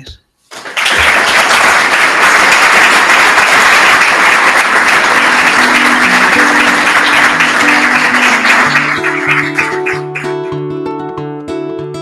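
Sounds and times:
audience applause: 0.5 - 10.6
music with plucked strings: 4.8 - 12.0.

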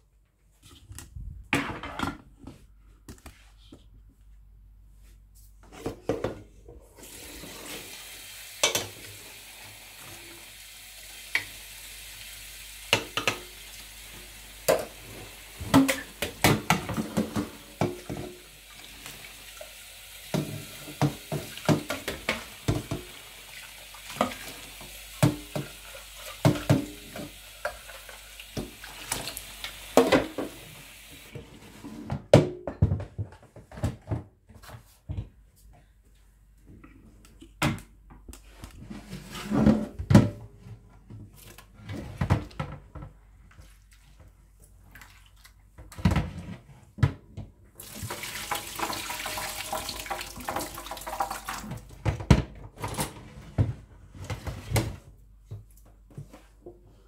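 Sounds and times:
water running into a bowl: 7.0 - 31.3, 47.8 - 52.0.

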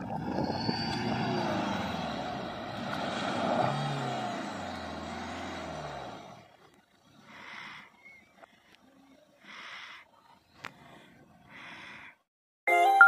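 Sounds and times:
car engine revving: 0.0 - 8.6.

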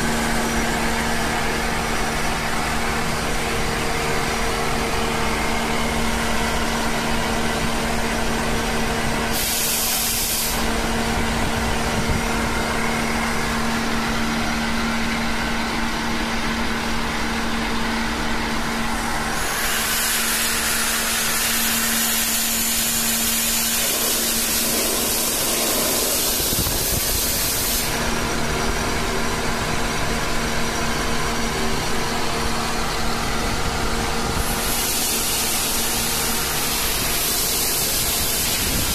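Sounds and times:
air compressor humming: 0.0 - 38.9
compressed air hissing: 9.3 - 10.9, 19.1 - 28.0, 34.4 - 38.9.

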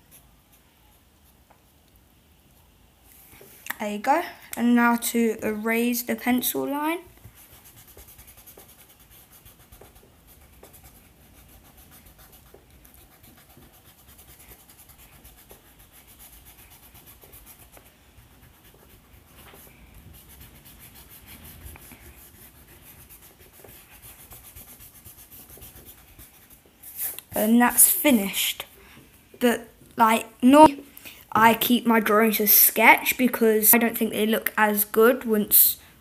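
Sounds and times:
eraser rubbing over paper: 7.1 - 27.9.

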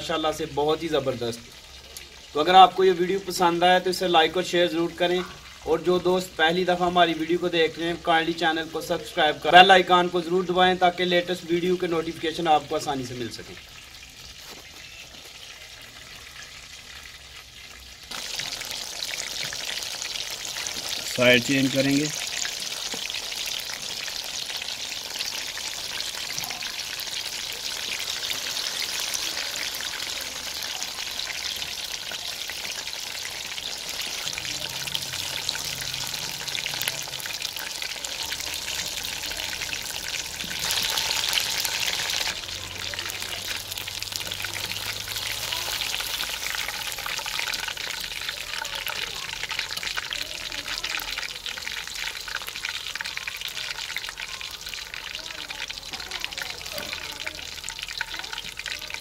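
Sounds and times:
food deep-frying in oil: 0.0 - 59.0
wooden spatula turning food: 14.1 - 59.0.

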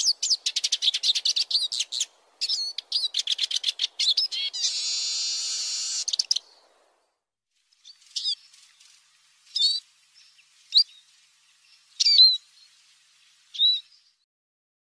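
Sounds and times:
bird call notes: 0.0 - 6.6
bird twittering: 0.0 - 6.8, 7.8 - 12.8, 13.5 - 14.2.

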